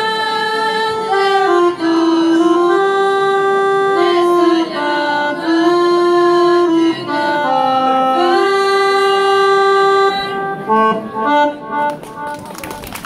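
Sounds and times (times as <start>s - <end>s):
young voices singing: 0.0s - 2.8s, 3.9s - 9.4s.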